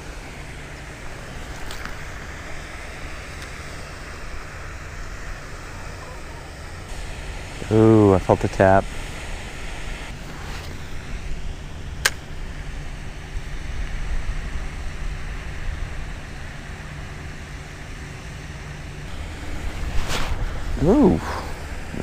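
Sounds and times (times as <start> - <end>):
low outdoor rumble: 0.0 - 22.0
wind on microphone: 19.1 - 22.0.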